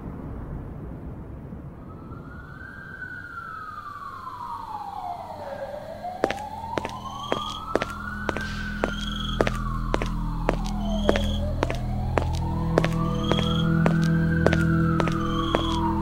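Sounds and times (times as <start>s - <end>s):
siren wailing: 2.0s - 16.0s
low drone: 5.3s - 16.0s.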